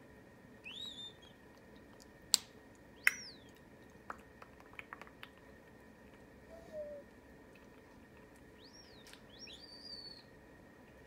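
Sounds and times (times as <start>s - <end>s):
parrot whistling calls: 0.6s - 1.3s, 3.0s - 3.5s, 6.5s - 7.0s, 8.6s - 10.3s.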